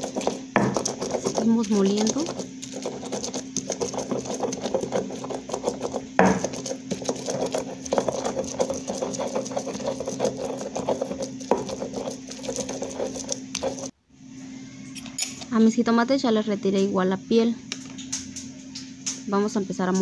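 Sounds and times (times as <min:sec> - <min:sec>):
stone pestle grinding chiles: 0:00.0 - 0:13.9.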